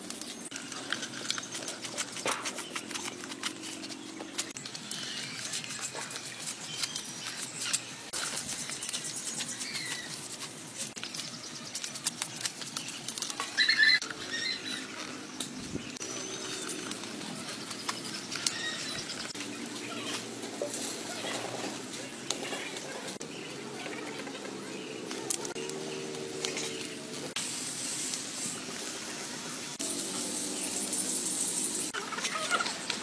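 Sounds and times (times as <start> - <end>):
charcoal fire crackling: 0.0 - 33.0
loud squeak-like call: 13.6 - 14.9.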